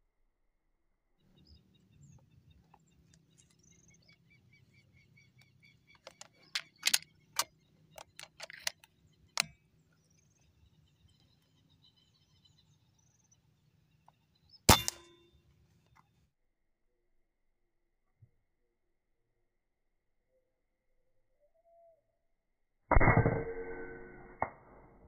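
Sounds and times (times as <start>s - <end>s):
outdoor background noise: 1.2s - 16.3s
small birds chirping: 1.3s - 15.0s
air rifle handling clicks: 5.4s - 9.6s.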